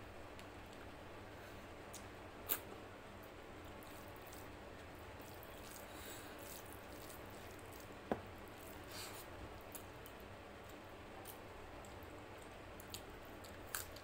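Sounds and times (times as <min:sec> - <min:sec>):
fingers squishing rice and curry: 0:03.6 - 0:14.0.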